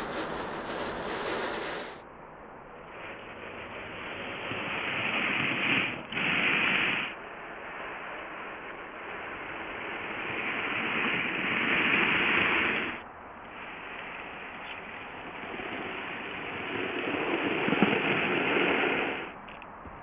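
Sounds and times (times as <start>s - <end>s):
model locomotive whirring: 0.0s - 20.0s.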